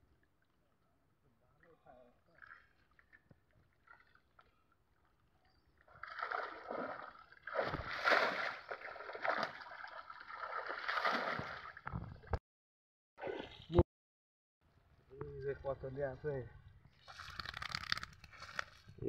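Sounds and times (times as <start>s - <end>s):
pond water splashing and sloshing: 2.3s - 4.6s, 5.9s - 12.3s, 13.2s - 13.8s, 17.0s - 18.8s.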